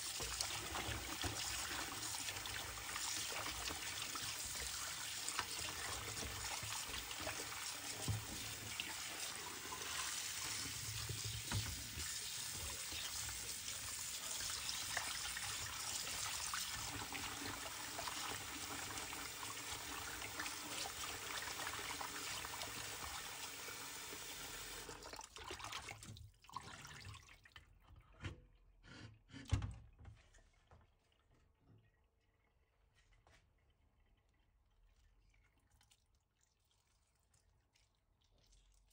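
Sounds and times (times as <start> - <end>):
tap water running into steel bowl: 0.0 - 27.7
hands rinsing fish splashing: 0.0 - 27.8
water dripping: 30.4 - 38.9.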